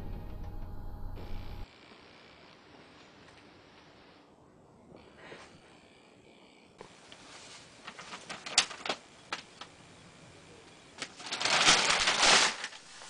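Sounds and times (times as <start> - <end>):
loud rustle: 6.8 - 9.7, 11.0 - 13.0.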